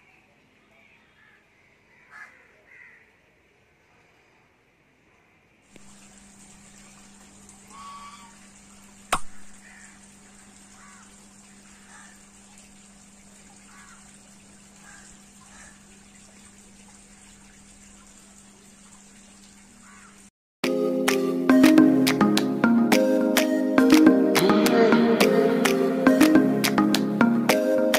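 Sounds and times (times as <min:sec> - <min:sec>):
low hum and hiss: 0:03.7 - 0:20.0
pond water splashing and lapping: 0:05.8 - 0:27.9
sharp click: 0:09.1 - 0:09.6.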